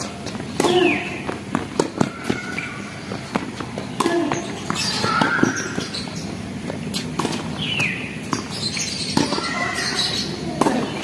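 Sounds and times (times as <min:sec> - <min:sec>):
racket hitting tennis ball: 0:00.0 - 0:02.4, 0:06.7 - 0:09.5
tennis ball bouncing: 0:00.0 - 0:06.0, 0:06.6 - 0:11.0.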